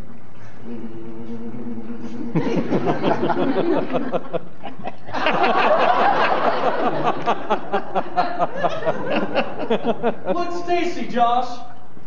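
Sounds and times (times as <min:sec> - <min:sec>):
audience laughter: 0:02.3 - 0:10.4.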